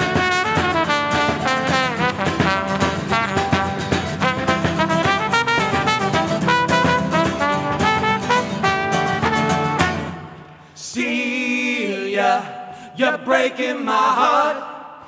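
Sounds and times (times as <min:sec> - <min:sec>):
mandolin: 0:00.0 - 0:10.3
trumpet melody: 0:00.0 - 0:10.4
strummed acoustic guitar: 0:00.0 - 0:10.7
men singing unaccompanied: 0:10.8 - 0:14.7.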